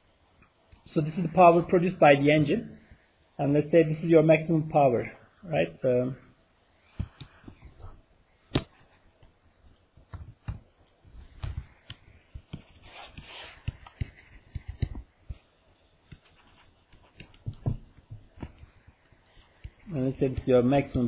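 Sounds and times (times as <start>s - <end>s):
stylus tapping on screen: 8.5s - 21.0s
stylus scratching: 11.2s - 21.0s.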